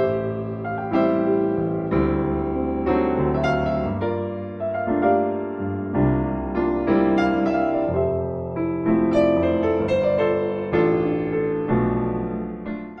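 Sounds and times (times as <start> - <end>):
slow piano melody: 0.0 - 13.0.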